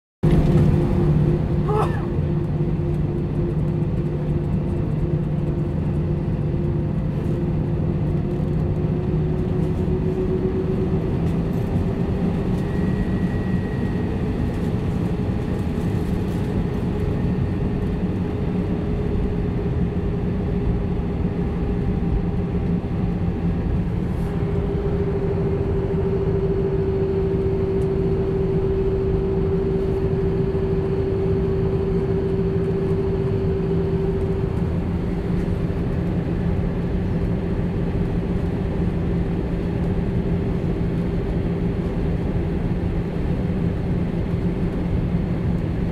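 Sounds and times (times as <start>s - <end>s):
jet engine drone: 0.2s - 45.9s
low rumble: 0.2s - 45.9s
rising hum: 21.4s - 44.7s.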